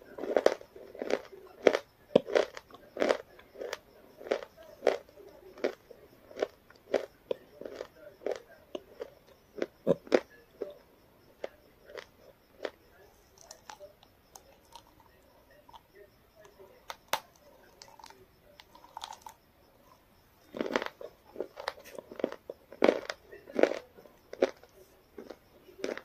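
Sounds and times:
person biting and chewing food: 5.6 - 10.2, 16.9 - 19.4, 20.5 - 26.0.

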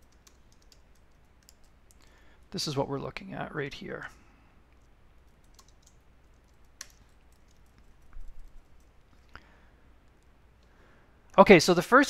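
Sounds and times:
low room hum: 0.0 - 12.0
keyboard keystrokes: 5.4 - 8.9.

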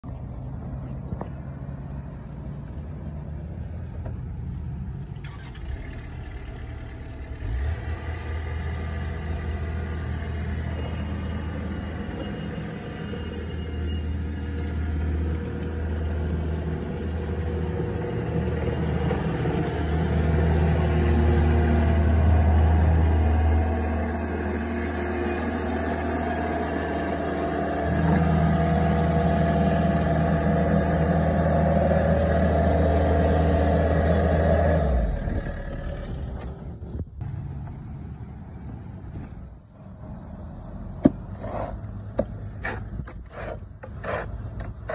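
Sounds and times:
track loader engine running: 0.0 - 44.9.

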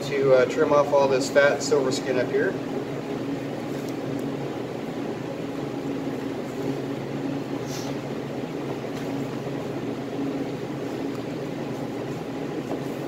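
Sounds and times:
fan humming: 0.0 - 13.0.

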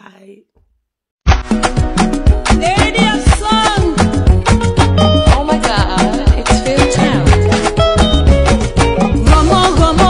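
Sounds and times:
upbeat music with drum beat: 1.3 - 10.0.

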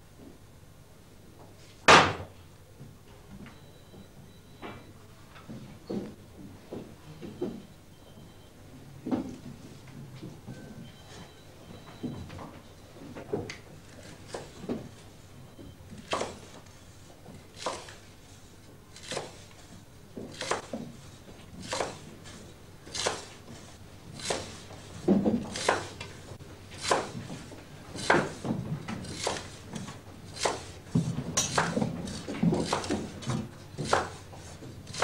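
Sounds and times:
knives chopping on wooden boards: 1.9 - 2.3, 13.9 - 14.8, 16.0 - 16.6, 17.5 - 18.1, 19.0 - 19.4, 20.2 - 35.0.

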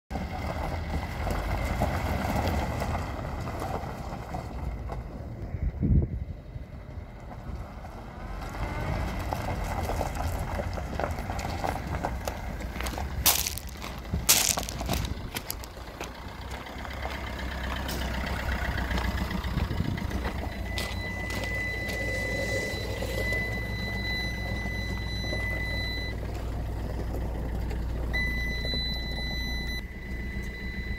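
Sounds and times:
van engine idling: 0.1 - 30.9
high-pitched electronic warning tone: 20.6 - 26.1.

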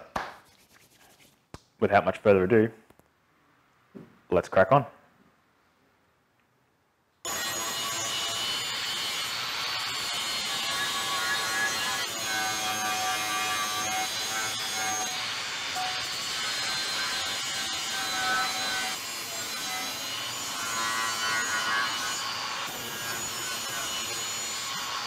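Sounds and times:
angle grinder grinding steel: 7.3 - 25.0.

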